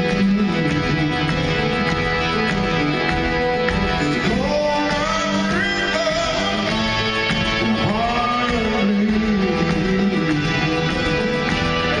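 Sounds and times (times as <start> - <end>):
rock band playing live: 0.0 - 12.0
person singing: 4.0 - 11.0.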